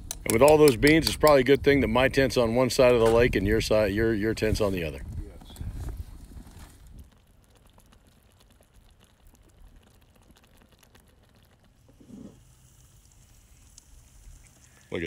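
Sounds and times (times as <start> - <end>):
small ticks and pops: 0.0 - 1.7, 6.8 - 14.8
stew simmering in a pan: 4.3 - 15.0.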